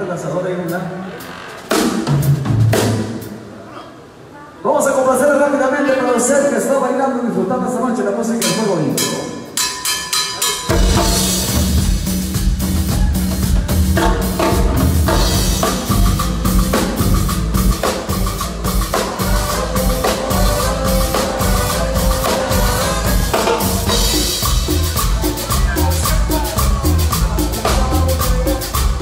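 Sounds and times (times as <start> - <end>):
latin dance band playing: 0.0 - 4.9, 7.6 - 29.0
drum kit beat: 1.6 - 3.6, 8.4 - 29.0
congas: 8.3 - 29.0.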